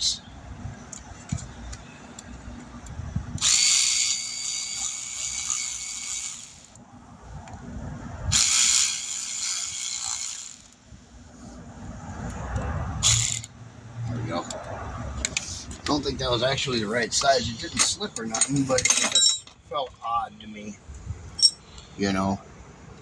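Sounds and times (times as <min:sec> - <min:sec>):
power driver whining: 0:01.7 - 0:06.8, 0:08.3 - 0:10.8.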